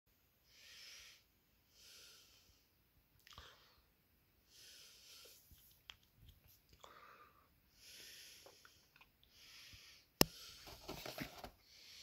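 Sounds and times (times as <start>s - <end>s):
soft breathing close to microphone: 0.4s - 5.8s, 6.8s - 12.0s
cardboard box crinkling: 10.7s - 11.6s.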